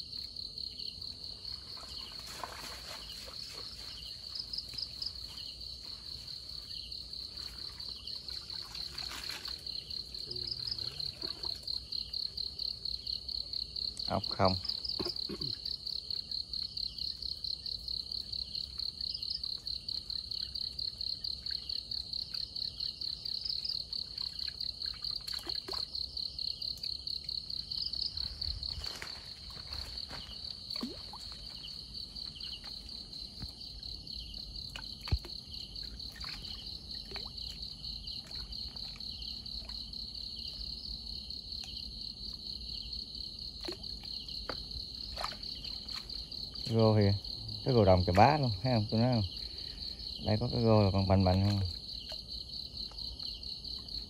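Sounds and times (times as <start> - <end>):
night insects chirping: 0.0 - 54.0
water splashes and drips: 1.3 - 12.3, 23.4 - 40.7, 43.4 - 54.0.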